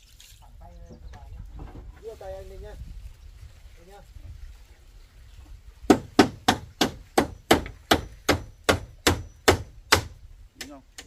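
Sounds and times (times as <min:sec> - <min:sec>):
hammer driving nails: 0:05.9 - 0:10.2.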